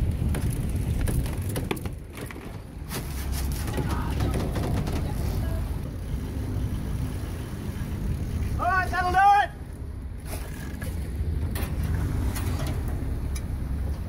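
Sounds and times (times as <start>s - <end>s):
wind buffeting microphone: 0.0s - 2.9s.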